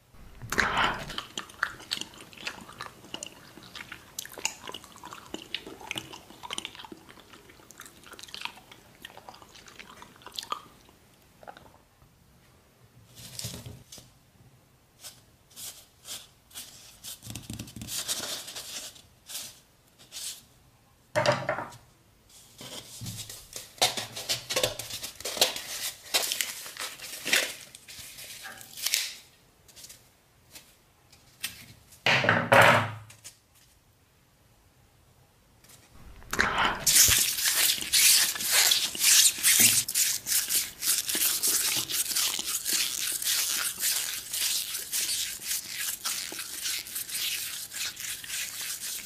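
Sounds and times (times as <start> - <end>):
knife crunching through foam: 36.0 - 49.0.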